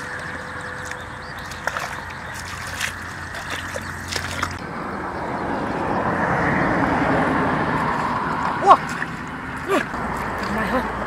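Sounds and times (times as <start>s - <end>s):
footsteps squelching in mud: 0.0s - 4.6s, 7.7s - 11.0s.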